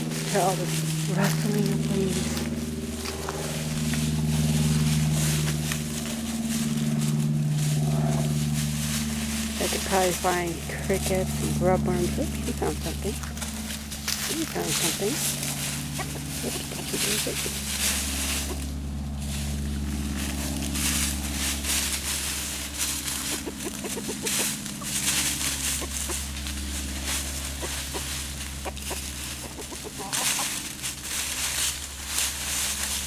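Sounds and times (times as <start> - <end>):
chickens scratching in dry leaves: 0.0 - 33.0
chickens clucking: 9.7 - 18.8, 22.3 - 32.9.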